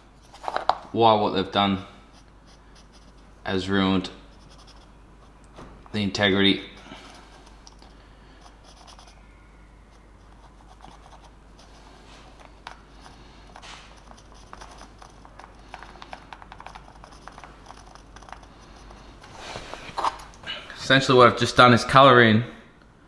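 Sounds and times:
marker pen scribbling on plastic: 2.1s - 3.4s, 4.1s - 5.4s, 8.4s - 9.2s, 9.8s - 20.3s.

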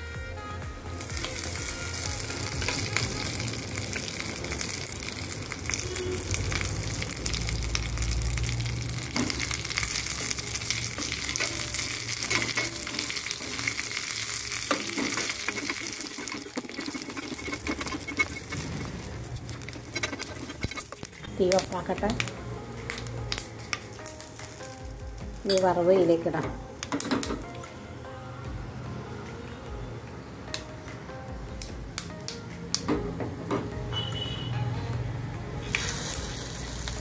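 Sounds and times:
spices sizzling in hot oil: 1.0s - 27.4s, 35.6s - 37.0s.

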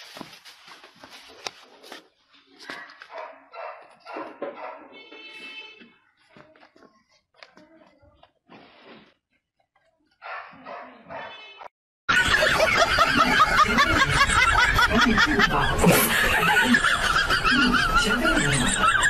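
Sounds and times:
loud laughter: 12.1s - 19.0s.

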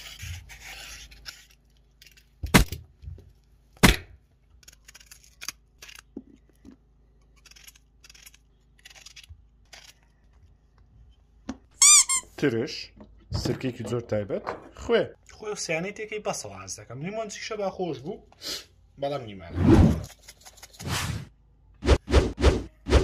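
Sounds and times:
knife cutting strokes: 0.0s - 2.2s
vegetable peeler scraping: 0.0s - 2.3s, 4.6s - 6.1s, 7.3s - 10.0s.

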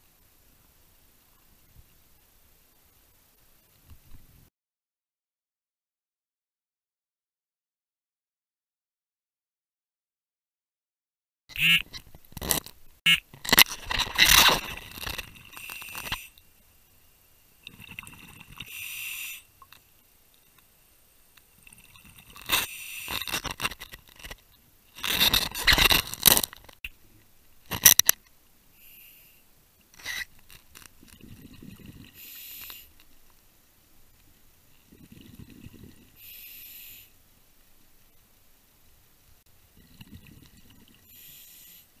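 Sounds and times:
gear scraping: 13.4s - 16.3s, 25.0s - 26.8s
exhaled bubbles: 17.6s - 19.8s, 31.0s - 32.6s, 34.8s - 36.2s, 39.7s - 41.1s
regulator breathing hiss: 18.6s - 19.6s, 22.6s - 23.3s, 28.7s - 29.5s, 32.2s - 33.0s, 36.2s - 37.2s, 41.0s - 42.0s.

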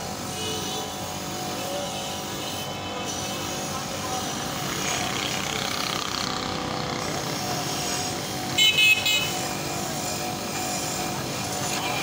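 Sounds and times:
wire brush wheel grinding metal: 0.0s - 8.6s, 9.3s - 12.0s.

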